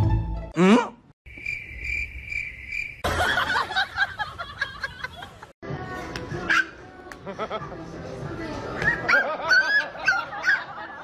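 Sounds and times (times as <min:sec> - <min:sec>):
cricket chirping: 0:01.3 - 0:03.1.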